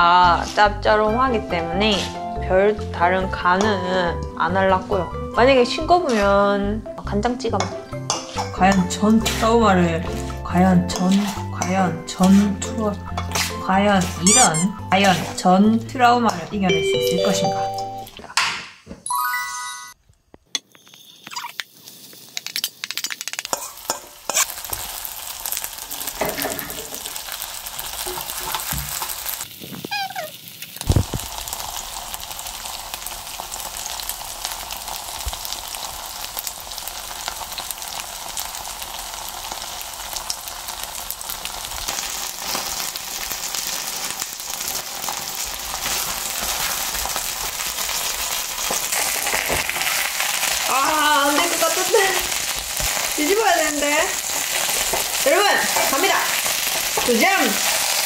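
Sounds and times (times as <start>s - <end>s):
batter sizzling in frying pan: 7.3s - 16.4s, 20.7s - 58.0s
spoon scraping and clicking: 22.4s - 24.5s.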